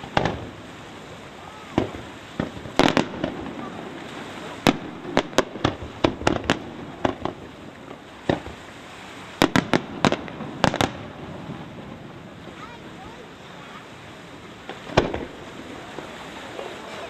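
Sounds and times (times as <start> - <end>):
firework shells bursting: 0.0 - 0.6, 1.7 - 8.6, 9.4 - 11.3, 14.6 - 16.2.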